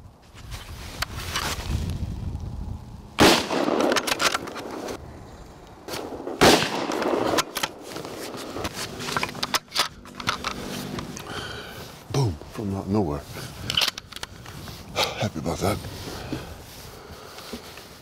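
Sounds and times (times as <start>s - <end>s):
rifle shots with echo: 3.2s - 4.9s, 6.0s - 8.3s.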